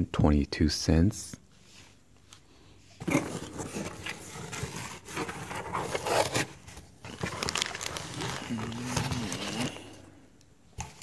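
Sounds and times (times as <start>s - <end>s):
cardboard flaps rubbing and scraping: 3.0s - 8.4s.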